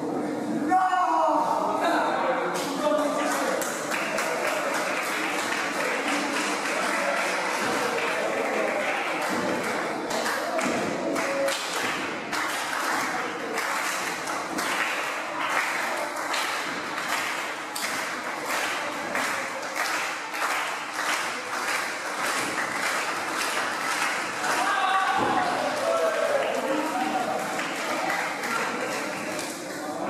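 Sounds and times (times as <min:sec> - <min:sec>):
crowd clapping: 0:02.6 - 0:30.0
voices shouting and talking: 0:24.4 - 0:29.4.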